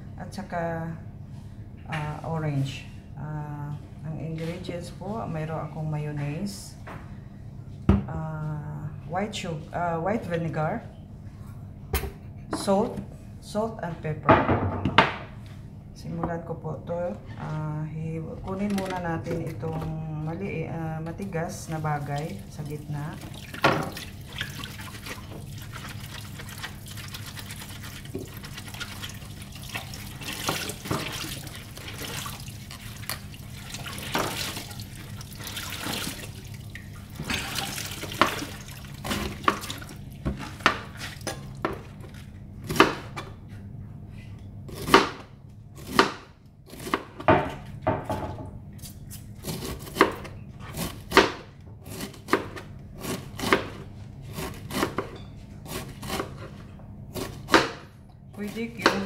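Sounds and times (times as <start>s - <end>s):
knife cutting cabbage: 45.8s - 47.3s, 48.8s - 57.8s.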